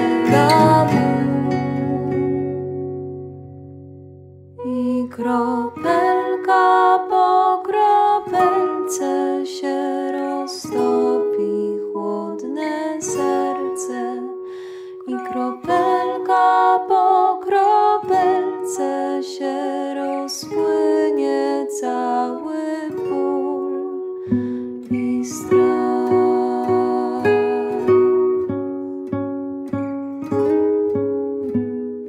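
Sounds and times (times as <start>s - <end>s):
woman singing lullaby: 0.0s - 2.1s, 4.6s - 28.2s
plucked string accompaniment: 0.0s - 32.0s.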